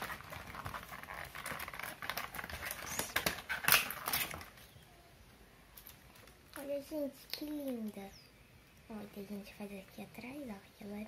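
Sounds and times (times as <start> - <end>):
plastic packaging crinkling: 0.0 - 4.8.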